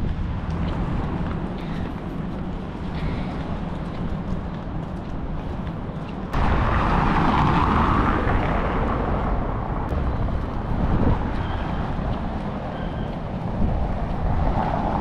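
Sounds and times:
low wind rumble on microphone: 0.0 - 15.0
street noise: 0.0 - 15.0.

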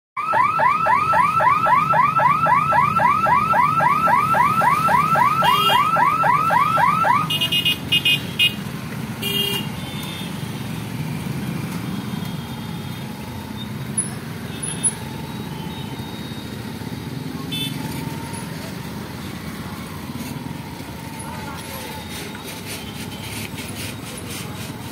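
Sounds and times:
warning siren wailing: 0.2 - 7.4.

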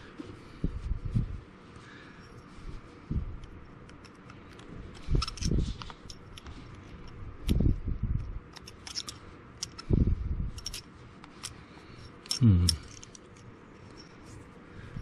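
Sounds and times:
small metallic clicks and clinks: 3.4 - 9.9, 10.5 - 14.3.

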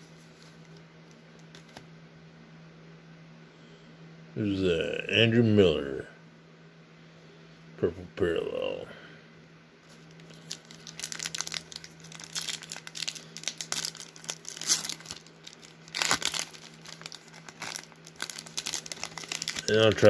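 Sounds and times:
foil wrapper crinkling and tearing: 9.9 - 20.0.

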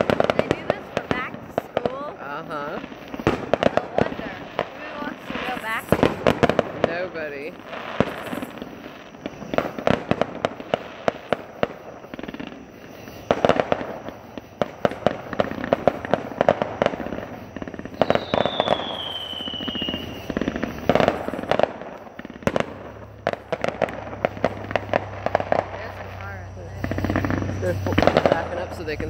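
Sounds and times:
fireworks bursting: 0.0 - 29.0
fireworks crackling: 0.0 - 29.0
high falling whistle: 18.1 - 20.3.

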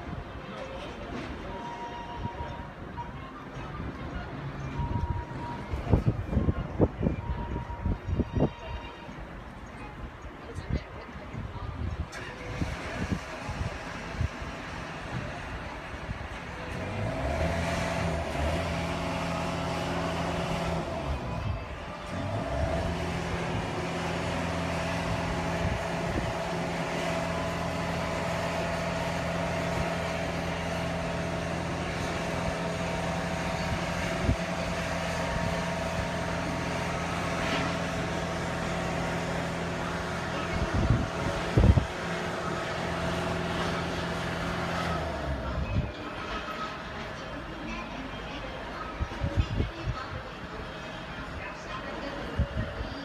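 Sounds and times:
ship machinery humming: 0.0 - 53.0.

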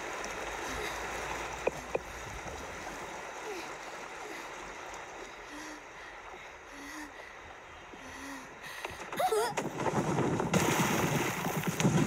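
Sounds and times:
stream water rushing: 0.0 - 9.4
child wavering cry: 9.2 - 9.6.

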